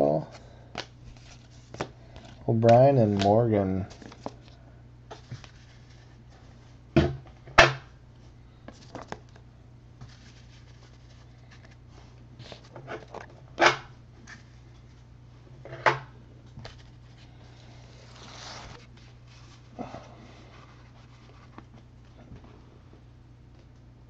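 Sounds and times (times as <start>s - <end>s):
cards and wrappers rustling: 0.2s - 6.5s, 8.6s - 9.4s, 10.0s - 13.4s, 16.5s - 22.2s.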